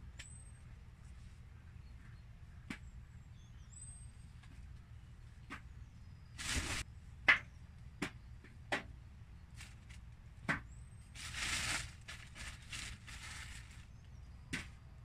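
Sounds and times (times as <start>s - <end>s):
plastic sheet rustling: 6.4s - 6.8s, 9.6s - 10.0s, 11.1s - 13.9s.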